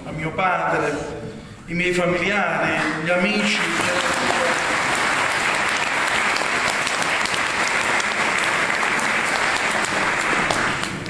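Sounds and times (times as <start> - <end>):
crowd applauding: 2.7 - 11.0.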